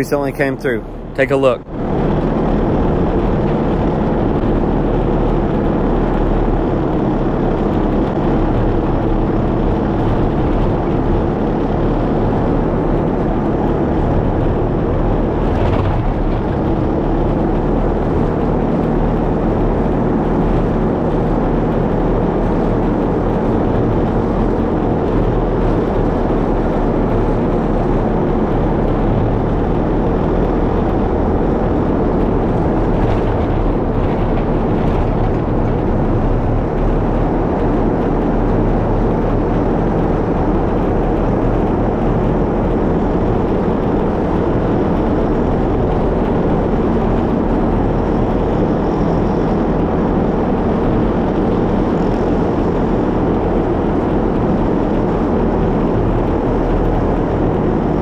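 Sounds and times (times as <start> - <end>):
vehicle engine and road noise: 0.0 - 58.0.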